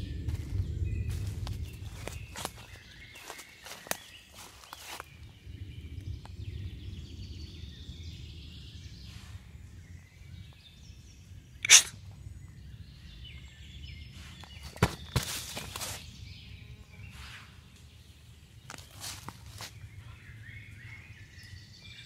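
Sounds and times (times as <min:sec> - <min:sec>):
low steady rumble: 0:00.0 - 0:03.2
sharp snort: 0:11.6 - 0:12.0.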